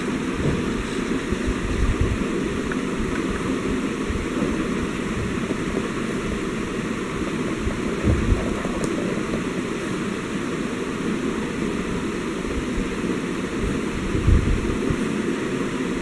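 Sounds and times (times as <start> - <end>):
steady rumbling noise: 0.0 - 16.0
low bumps: 7.6 - 9.5.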